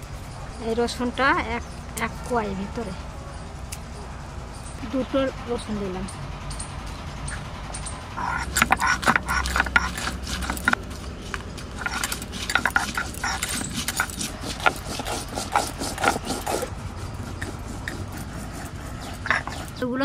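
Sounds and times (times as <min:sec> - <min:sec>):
gritty stone scraping: 0:08.2 - 0:20.0.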